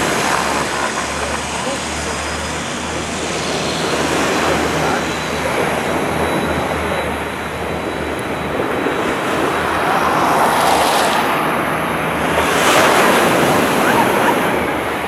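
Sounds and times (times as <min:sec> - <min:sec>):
faint high whine: 0:00.0 - 0:15.0
turboprop engines and propellers: 0:00.0 - 0:15.0
wind and surf rushing: 0:00.0 - 0:15.0.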